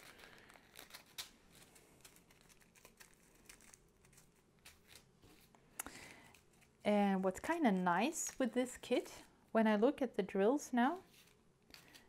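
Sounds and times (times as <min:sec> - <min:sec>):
plastic bags crinkling: 0:00.0 - 0:05.2.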